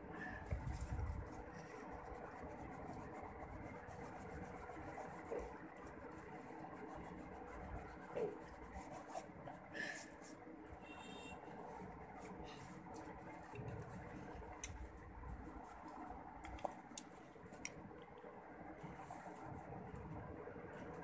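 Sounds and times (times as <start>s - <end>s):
eraser rubbing on paper: 0.7s - 10.4s.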